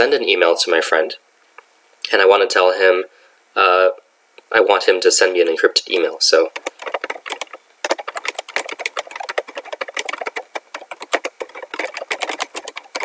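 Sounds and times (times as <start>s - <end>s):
laptop keyboard typing: 6.4s - 13.0s.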